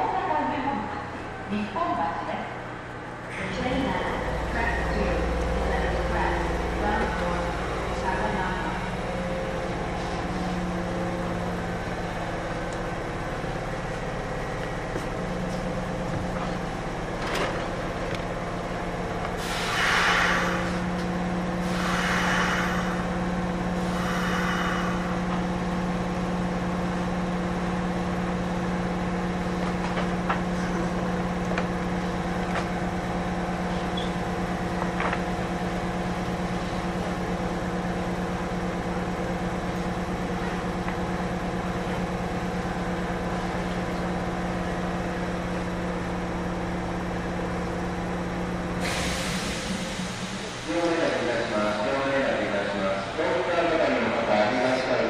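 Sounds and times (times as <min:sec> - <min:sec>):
train electrical hum: 0:00.0 - 0:55.0
air hissing: 0:19.3 - 0:25.7, 0:48.7 - 0:51.1.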